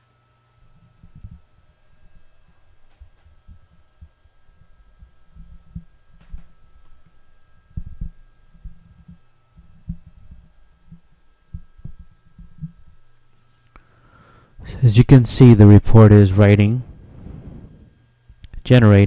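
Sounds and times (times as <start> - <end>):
electrical hum with high tones: 0.0 - 19.0
muffled thumps on microphone: 7.7 - 13.0.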